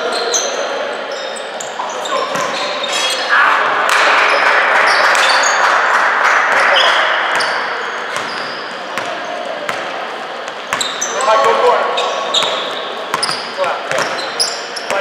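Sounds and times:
sneaker squeaks: 0.0s - 3.3s, 4.3s - 5.6s, 6.6s - 15.0s
din of players' voices: 0.0s - 15.0s
basketball bouncing on court: 7.2s - 11.7s, 12.3s - 15.0s.

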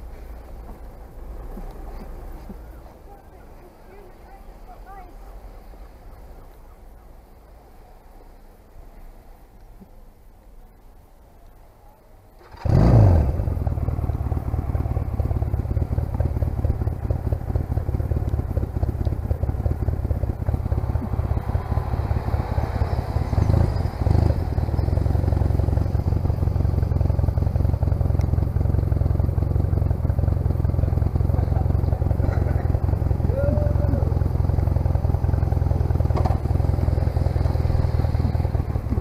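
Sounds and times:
motorcycle engine starting and idling: 12.3s - 39.0s.

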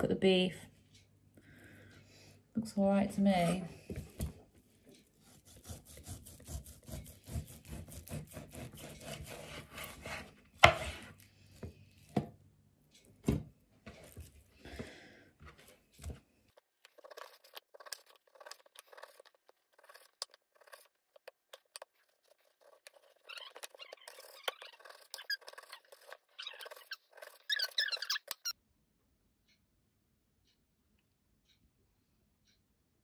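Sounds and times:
knife sawing through meat: 5.2s - 10.3s.

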